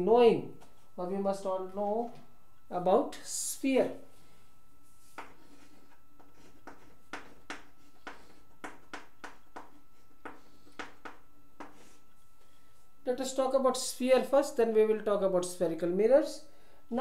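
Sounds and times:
chalk tapping on blackboard: 5.0s - 12.0s.

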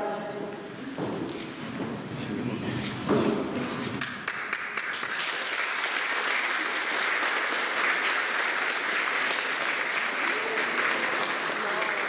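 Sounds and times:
audience applause: 4.0s - 12.0s.

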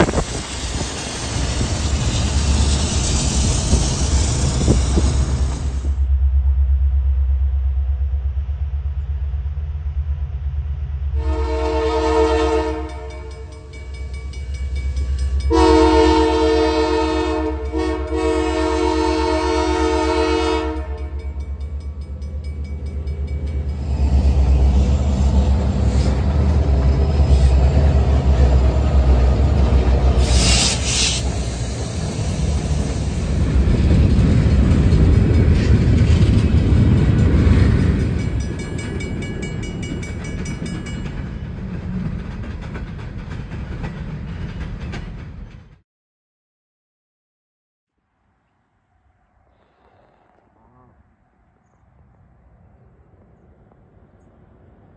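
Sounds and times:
train wheels on rails: 0.0s - 6.8s, 9.0s - 45.8s
locomotive engine rumble: 0.0s - 45.6s
train air horn blasts: 11.2s - 13.6s, 15.5s - 21.3s.

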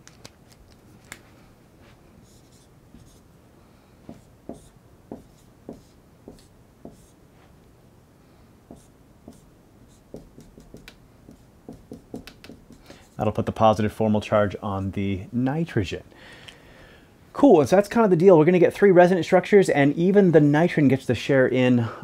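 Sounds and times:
marker writing on whiteboard: 2.2s - 3.3s, 4.0s - 7.2s, 8.7s - 13.4s.

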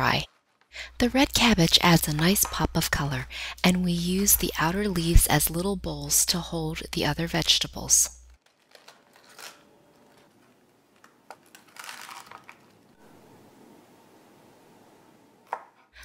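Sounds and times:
cabbage leaves rustling and crackling: 8.4s - 10.2s.

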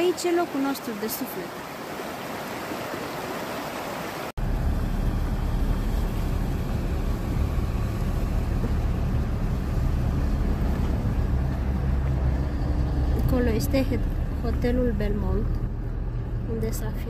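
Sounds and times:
rushing stream water: 0.0s - 15.8s
car driving rumble: 4.4s - 17.0s.

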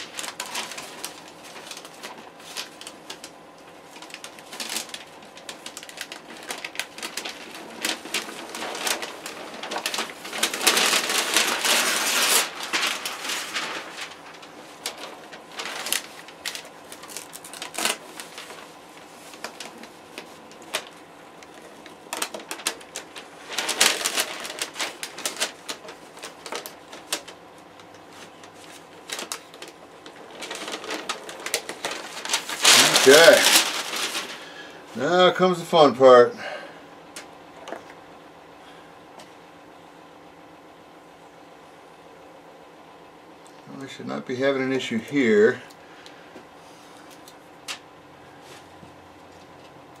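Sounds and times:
paper rustling and crinkling: 0.0s - 36.0s
tape being peeled off: 4.0s - 34.4s.

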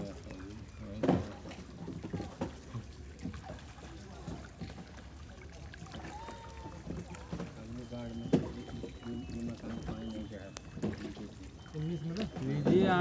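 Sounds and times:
water splashing and lapping: 0.0s - 13.0s
knocks on boat hull: 1.0s - 2.6s, 8.2s - 8.7s.

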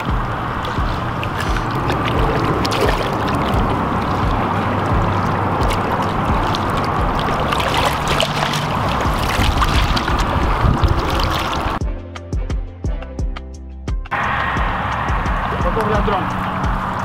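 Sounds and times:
small splashes: 0.0s - 11.8s
water washing against rocks: 0.0s - 11.8s.

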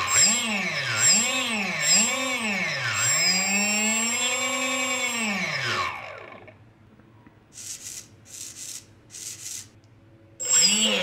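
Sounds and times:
electric motor whining: 0.0s - 6.6s, 10.4s - 11.0s.

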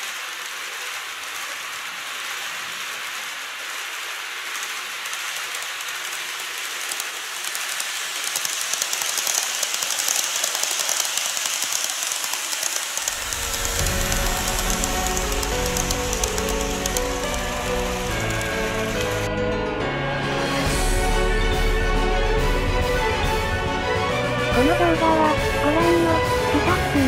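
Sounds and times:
model trains rolling on track: 0.0s - 19.4s
fine rapid clicking: 3.1s - 19.3s
music: 13.2s - 27.0s.

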